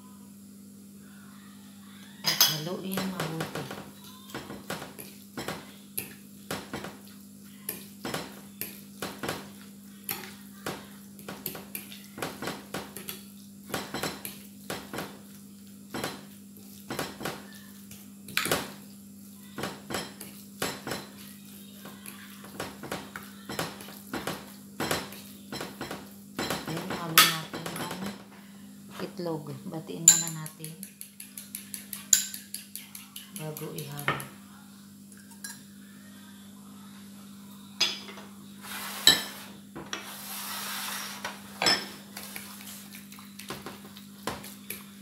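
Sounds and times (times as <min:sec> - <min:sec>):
spoon clinking against glass dish: 0:02.3 - 0:03.1, 0:30.1 - 0:33.0, 0:41.6 - 0:42.0.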